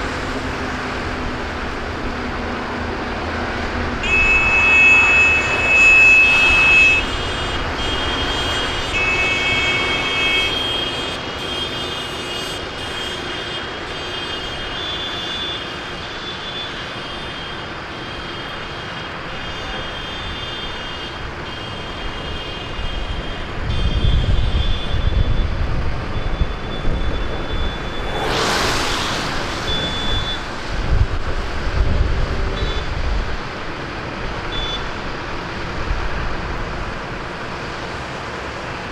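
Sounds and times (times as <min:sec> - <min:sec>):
high beeping: 0:26.3 - 0:30.5
tractors driving past: 0:27.2 - 0:31.6
loud hiss: 0:27.9 - 0:30.7.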